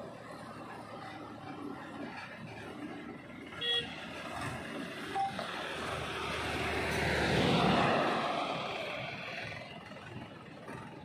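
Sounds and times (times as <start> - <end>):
vehicle passing by: 4.2 - 9.8.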